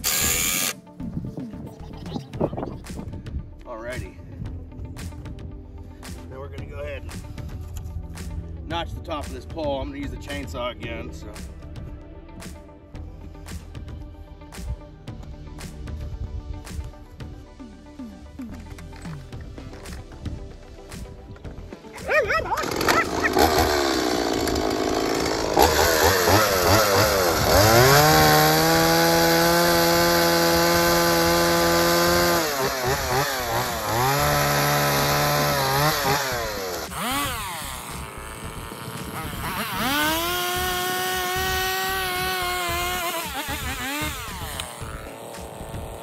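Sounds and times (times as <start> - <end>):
chainsaw cutting wood: 0.0 - 0.9, 20.7 - 46.0.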